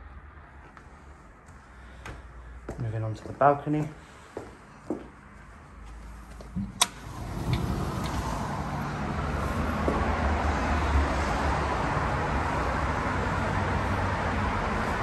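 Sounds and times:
highway traffic: 0:00.0 - 0:15.0
sliding door click: 0:06.6 - 0:08.6.

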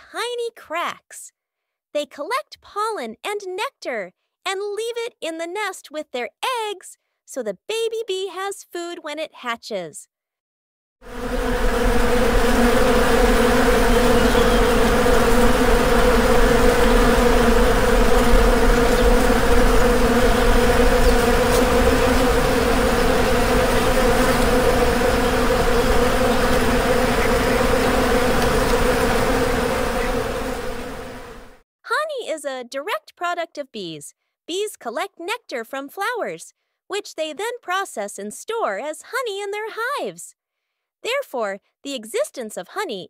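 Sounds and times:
honeybees buzzing: 0:11.0 - 0:31.6.

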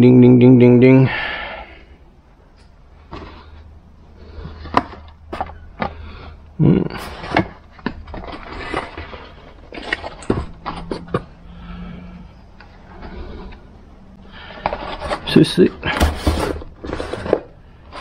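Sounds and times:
faint low hum: 0:00.0 - 0:18.0
scraping: 0:02.5 - 0:18.0
hard parts knocking and clattering: 0:07.0 - 0:11.4, 0:14.4 - 0:18.0.

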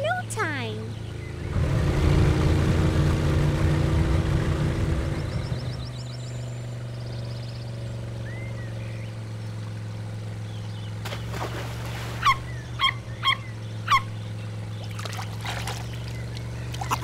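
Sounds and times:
baby otter squeaking: 0:12.2 - 0:14.1.

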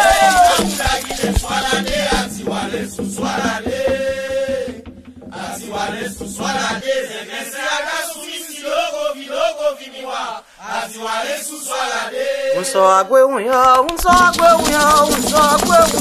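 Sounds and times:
person chanting a song: 0:05.4 - 0:16.0.

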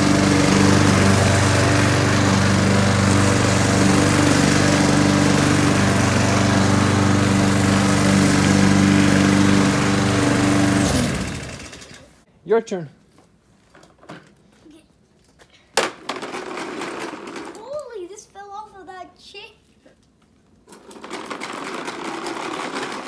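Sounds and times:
lawn mower cutting grass: 0:00.0 - 0:12.2, 0:20.8 - 0:23.0.

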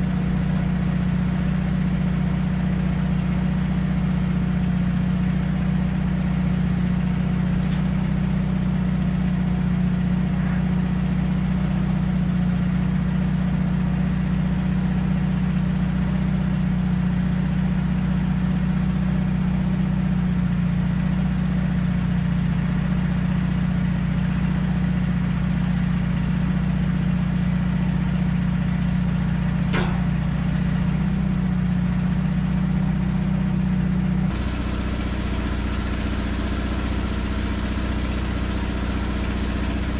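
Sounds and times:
van engine droning: 0:00.0 - 0:39.9
sharp click: 0:29.7 - 0:30.8.

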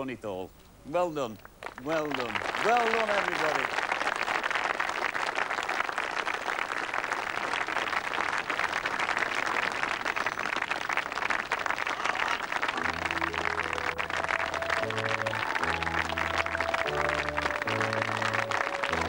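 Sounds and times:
crowd applauding: 0:01.5 - 0:19.0
music with low held notes: 0:12.8 - 0:19.0.

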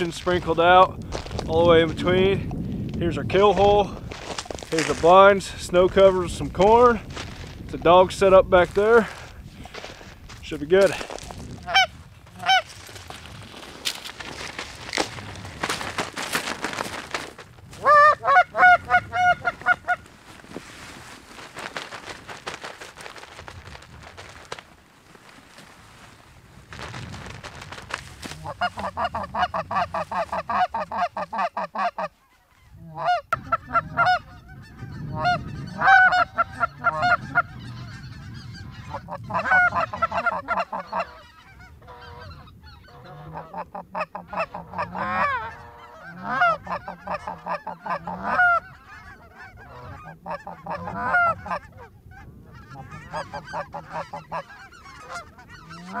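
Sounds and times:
goose honking: 0:11.6 - 0:12.9, 0:17.8 - 0:20.1, 0:28.3 - 0:56.0.

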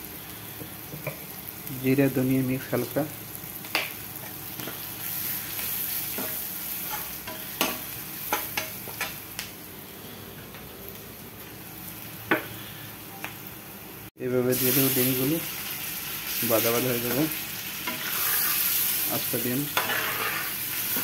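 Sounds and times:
food sizzling in hot oil: 0:00.0 - 0:09.9, 0:10.7 - 0:21.0
spatula scraping a pan: 0:17.8 - 0:21.0.

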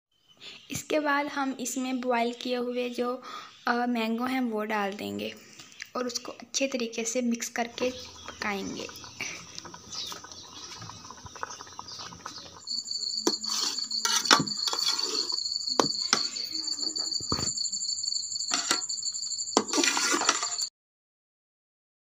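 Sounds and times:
metal spatula scraping a pot: 0:07.8 - 0:17.5, 0:18.5 - 0:20.7
high insect trill: 0:12.5 - 0:20.7.

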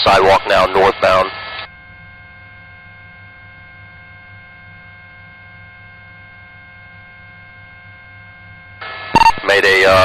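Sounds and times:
steady radio hum: 0:00.0 - 0:10.0.

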